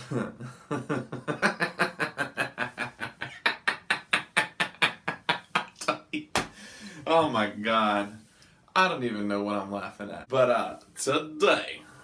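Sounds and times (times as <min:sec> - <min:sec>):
man laughing hard: 0:00.0 - 0:06.3.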